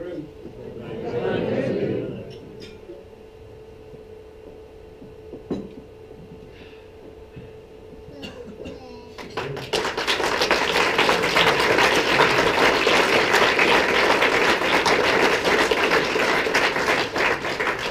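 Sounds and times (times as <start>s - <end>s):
crowd applauding: 9.2s - 17.9s.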